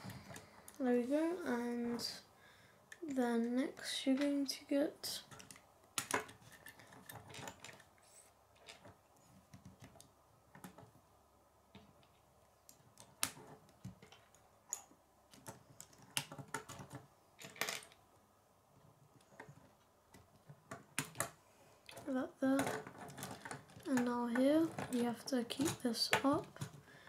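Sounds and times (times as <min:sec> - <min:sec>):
plastic pieces clicking together: 0:11.7 - 0:18.0, 0:19.3 - 0:26.8.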